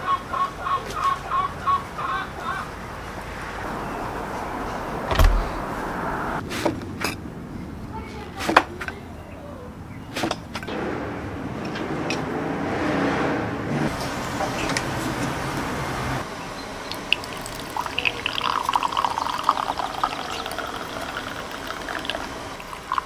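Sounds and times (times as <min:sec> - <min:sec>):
steady rushing noise: 0:02.7 - 0:07.6, 0:10.7 - 0:16.4
tea pouring into glass: 0:16.9 - 0:23.0.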